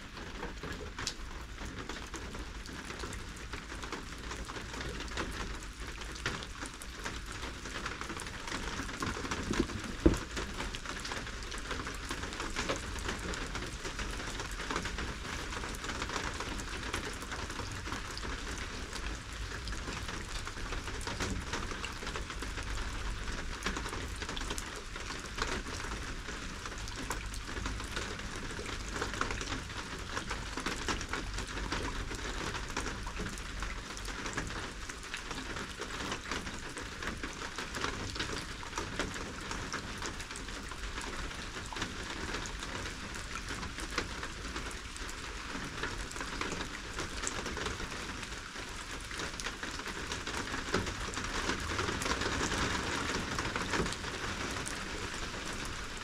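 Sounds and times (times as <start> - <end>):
rain pattering: 0.0 - 56.0.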